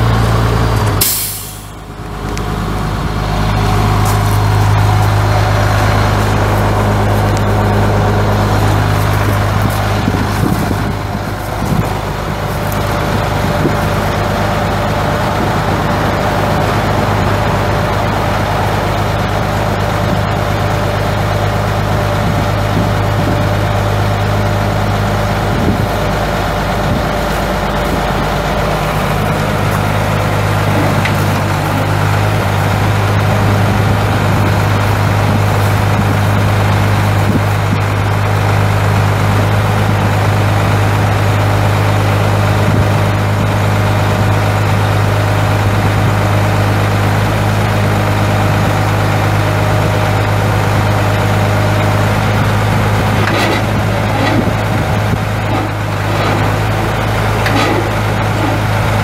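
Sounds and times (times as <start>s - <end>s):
diesel truck engine idling: 0.0s - 59.0s.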